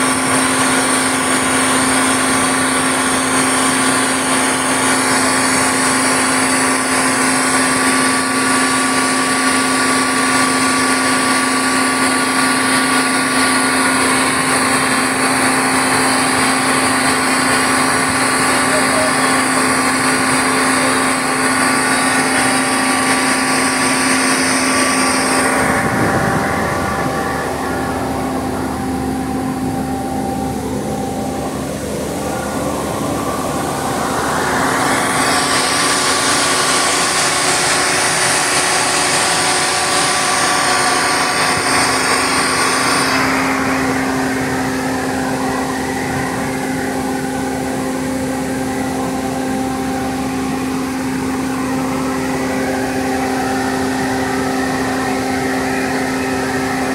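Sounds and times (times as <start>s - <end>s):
machine hum with held tones: 0.0s - 56.9s.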